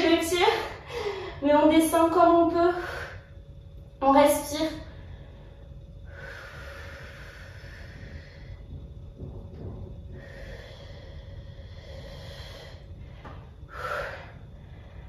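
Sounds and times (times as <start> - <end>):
woman breathing slowly and deeply: 0.3 - 1.5, 2.7 - 4.0, 4.8 - 15.0.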